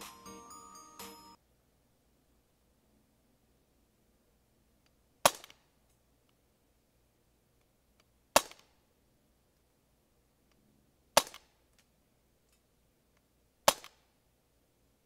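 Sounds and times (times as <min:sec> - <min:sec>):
air pistol shots: 0:05.2 - 0:05.6, 0:13.7 - 0:14.0.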